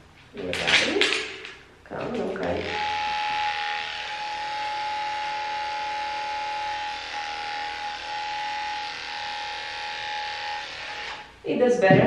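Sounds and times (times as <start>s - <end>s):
electric clippers whining: 2.2s - 11.4s.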